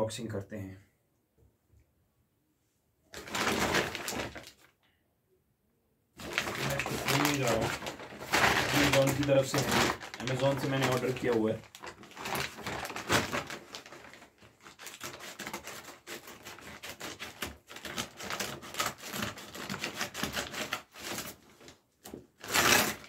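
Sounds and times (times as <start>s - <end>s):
paper crackling and rustling: 3.1s - 4.7s, 6.2s - 23.0s
scissors cutting paper: 14.8s - 21.4s, 22.4s - 23.0s.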